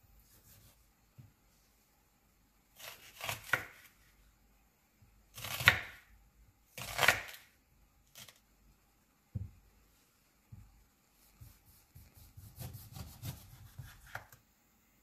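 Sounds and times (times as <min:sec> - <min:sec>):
knife slicing onion on board: 0:00.3 - 0:00.8, 0:02.8 - 0:04.0, 0:05.3 - 0:06.1, 0:06.7 - 0:07.5, 0:11.2 - 0:14.4.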